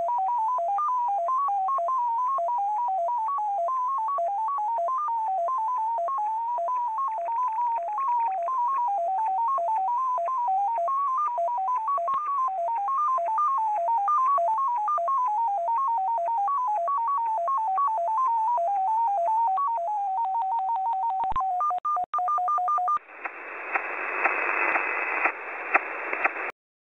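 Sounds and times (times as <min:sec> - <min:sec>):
shortwave band hiss: 0:23.0 - 0:26.5.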